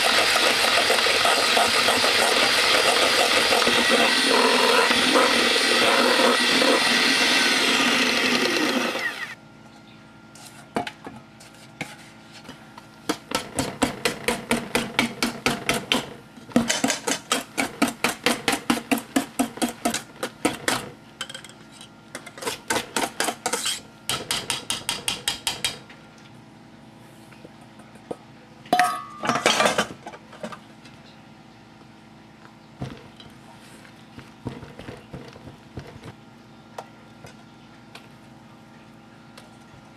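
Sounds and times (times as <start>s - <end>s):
electric hand mixer whirring: 0.0s - 9.4s.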